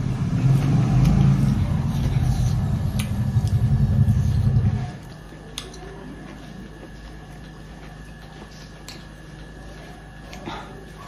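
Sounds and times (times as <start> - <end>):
loud low rumble: 0.0 - 5.0.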